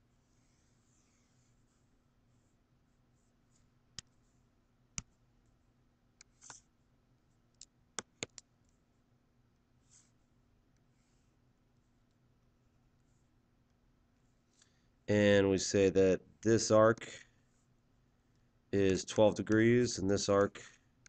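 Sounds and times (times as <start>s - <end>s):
soft scratchy sounds: 0.0s - 7.5s, 9.7s - 13.4s
computer mouse clicks: 7.5s - 8.5s.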